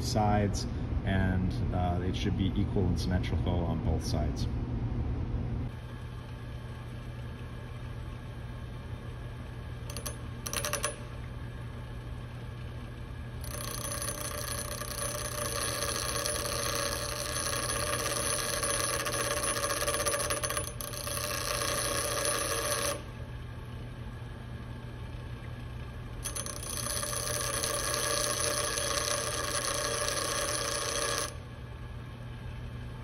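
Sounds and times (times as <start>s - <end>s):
metal grinding against wheel: 13.4s - 23.0s, 26.2s - 31.4s
bench grinder motor humming: 13.4s - 23.1s, 26.2s - 31.4s.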